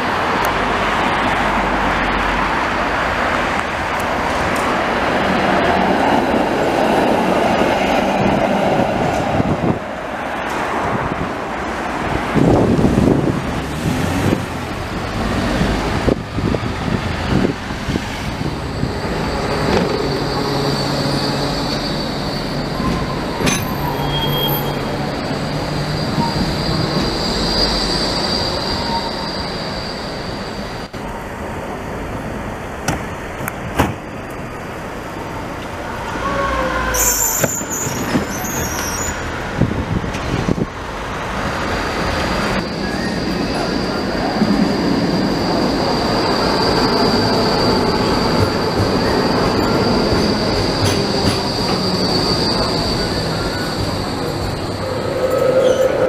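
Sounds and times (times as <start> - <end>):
road traffic: 0.0 - 56.0
trams running on tracks: 0.0 - 56.0
high-pitched wheel squeals: 18.6 - 30.9, 36.0 - 39.4, 42.4 - 56.0.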